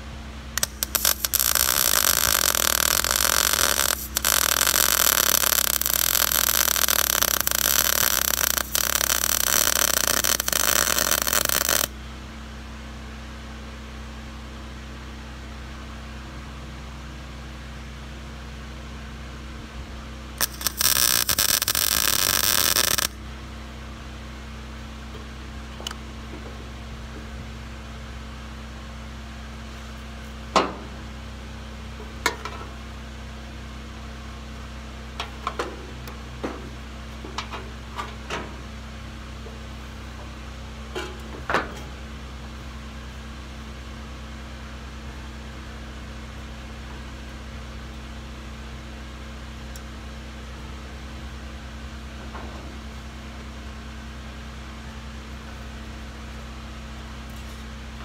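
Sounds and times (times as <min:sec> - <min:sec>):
low machine hum: 0:00.0 - 0:58.0.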